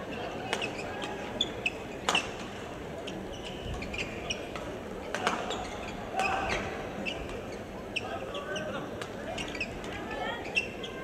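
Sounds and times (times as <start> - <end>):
shoes squeaking on court floor: 0.6 - 2.4, 3.0 - 8.7, 9.3 - 9.8, 10.4 - 11.0.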